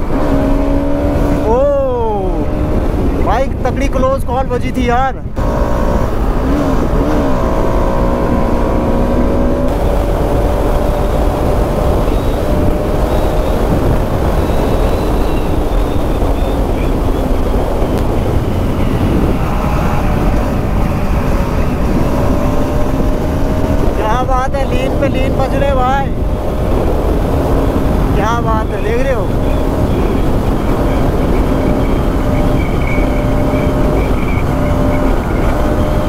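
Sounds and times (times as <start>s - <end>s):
wind and road noise: 0.0s - 36.0s
motorcycle engine running: 8.4s - 36.0s.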